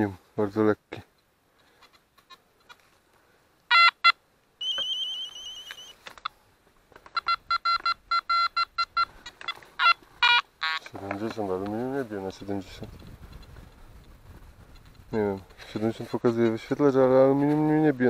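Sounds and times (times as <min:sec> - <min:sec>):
metal detector beeping: 0:03.7 - 0:06.3, 0:07.1 - 0:11.0
metal detector warbling tone: 0:04.6 - 0:06.0.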